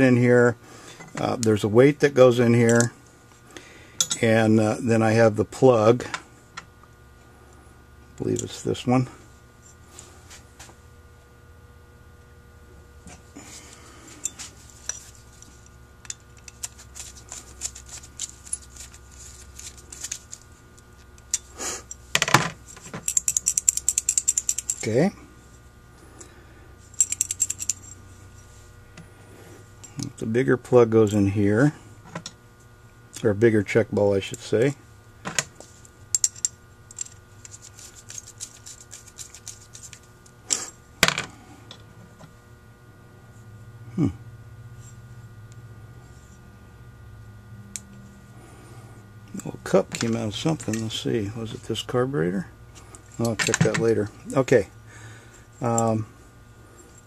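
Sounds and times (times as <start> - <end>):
screwdriver clicking and scraping metal: 14.2 - 20.4, 22.7 - 24.9, 27.0 - 28.0, 36.2 - 40.0
screwdriver clicking on metal: 23.0 - 24.9, 27.0 - 27.8.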